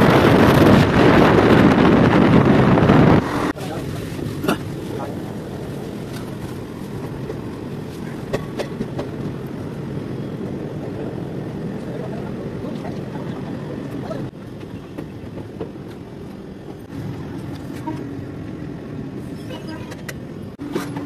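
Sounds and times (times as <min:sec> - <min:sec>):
wind on microphone: 0:00.0 - 0:04.3
train rumbling: 0:00.0 - 0:21.0.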